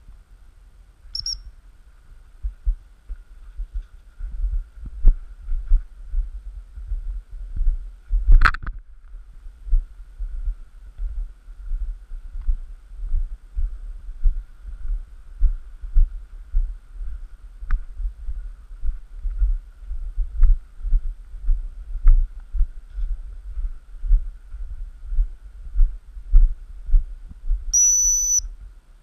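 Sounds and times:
dog whistle blast: 27.8 - 28.4.

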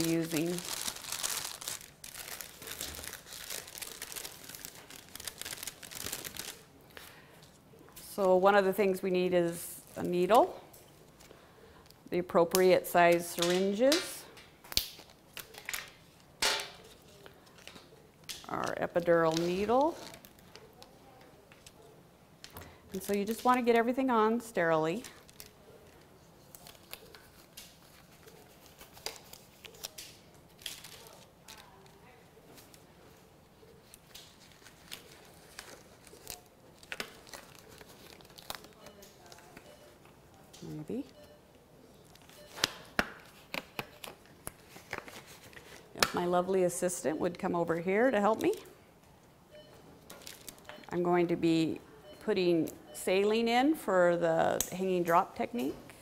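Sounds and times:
packaging crinkling: 0.0 - 7.2, 24.9 - 32.9, 33.6 - 39.7, 50.1 - 50.8
medical supplies clicking and rustling: 9.9 - 23.8, 24.9 - 41.2, 42.0 - 46.2, 48.2 - 50.9.

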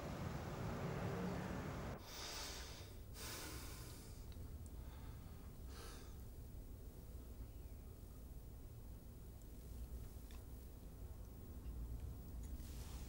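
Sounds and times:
man breathing through nose: 2.0 - 6.2.

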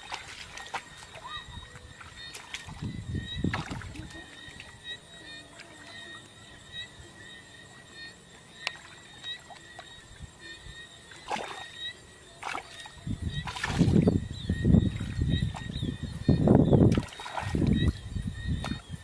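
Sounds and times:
small splashes and drips: 0.0 - 4.9, 11.1 - 14.1, 16.8 - 18.0
hands sloshing through muddy water: 0.0 - 6.4, 11.1 - 14.2, 16.8 - 19.0.

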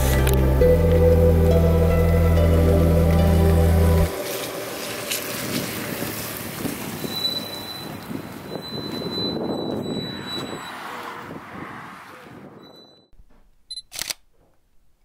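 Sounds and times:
tyres on wet road: 0.0 - 12.8
wind on microphone: 4.0 - 13.0.

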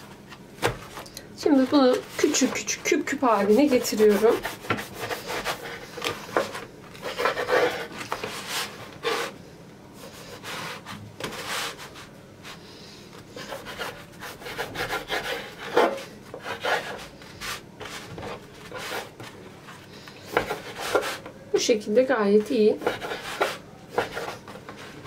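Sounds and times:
knife sawing crusty bread: 3.3 - 6.0, 7.0 - 9.3, 13.4 - 17.2, 22.8 - 24.4.

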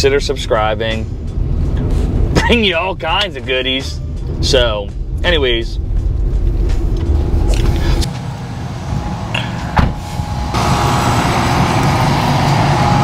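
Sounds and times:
air-conditioning units humming: 0.0 - 13.0
road rumble inside moving van: 0.0 - 13.0
thump: 9.7 - 10.0.

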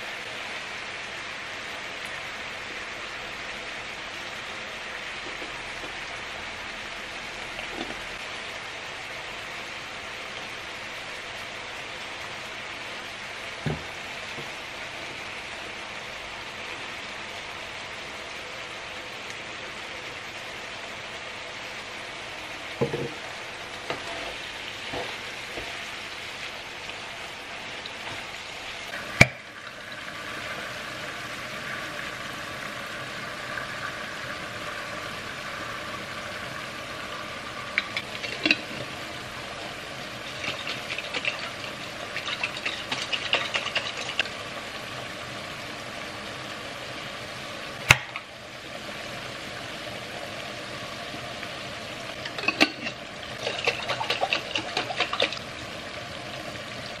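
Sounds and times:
meat sizzling in a frying pan: 0.0 - 57.0
wooden spoon scraping a pan: 23.8 - 25.8, 40.2 - 44.3, 52.3 - 55.4.

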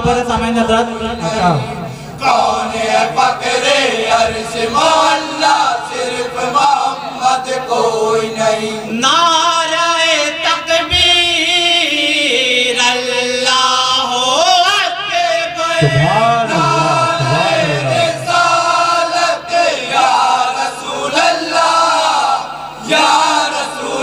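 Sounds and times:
men chanting into microphones: 0.0 - 24.0
deeper voice chanting: 15.8 - 18.6.

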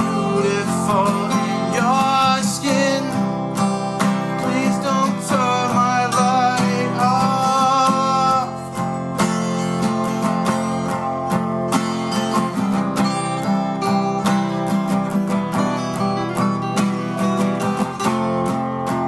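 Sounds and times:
man singing: 0.0 - 9.6
acoustic guitars strummed: 0.0 - 19.0.

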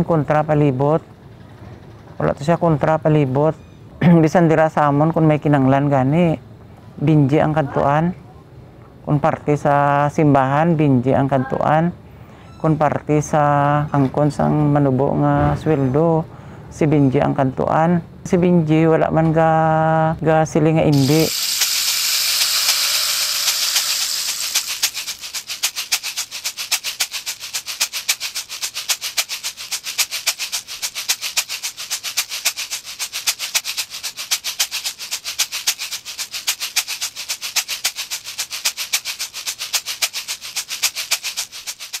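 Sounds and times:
fast shaker rattle: 20.9 - 42.0
hissing wash: 21.0 - 25.6.

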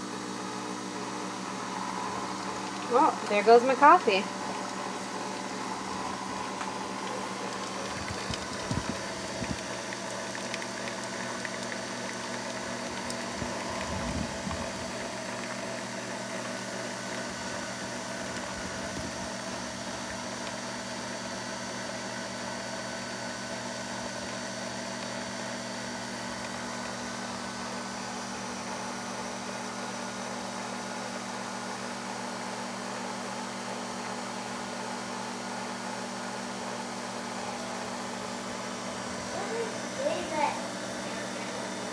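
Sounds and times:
coffee machine pump humming: 0.0 - 41.9
coffee pouring into mug: 1.1 - 19.0.

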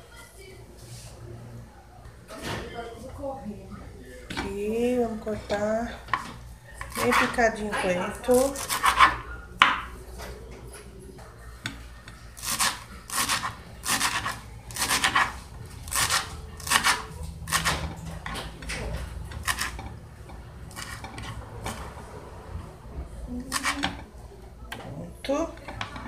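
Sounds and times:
knife chopping on wooden board: 6.1 - 7.4, 8.6 - 9.8, 12.4 - 18.0, 19.4 - 19.8, 23.5 - 24.0.

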